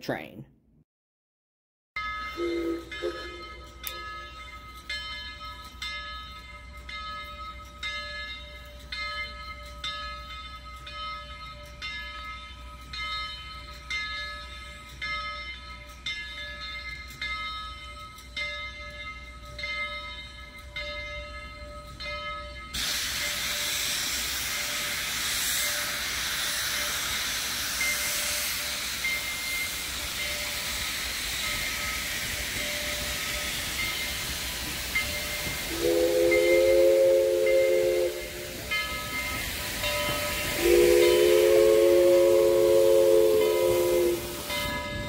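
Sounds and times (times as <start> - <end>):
locomotive bell ringing: 2.0 - 45.0
steam hissing: 22.7 - 45.0.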